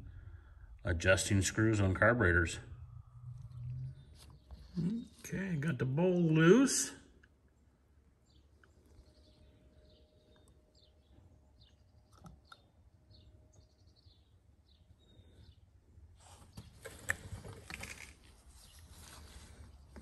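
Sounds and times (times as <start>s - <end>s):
gloved hands rustling: 16.2s - 20.0s.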